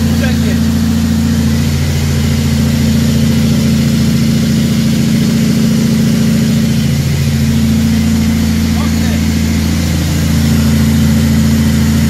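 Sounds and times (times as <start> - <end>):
diesel truck engine droning: 0.0 - 12.0.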